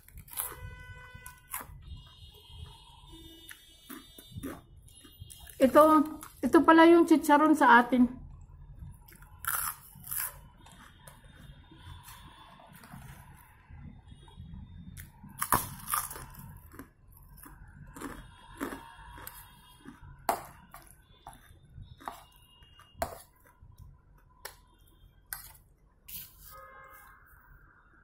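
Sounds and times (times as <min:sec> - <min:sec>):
crunching of crispy food: 0:00.0 - 0:00.7, 0:03.4 - 0:06.4, 0:09.0 - 0:13.4, 0:15.0 - 0:22.4
wet chewing: 0:03.5 - 0:06.4, 0:15.0 - 0:23.9.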